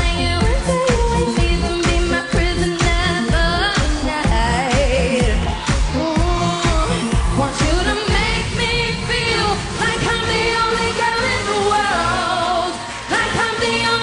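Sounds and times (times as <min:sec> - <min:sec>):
pop band playing: 0:00.0 - 0:14.0
woman singing into microphone: 0:00.0 - 0:14.0.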